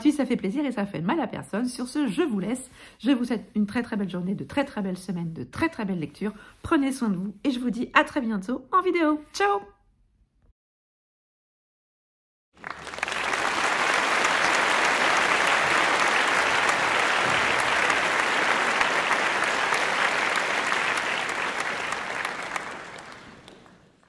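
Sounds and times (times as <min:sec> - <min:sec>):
crowd applauding: 0:12.6 - 0:24.0.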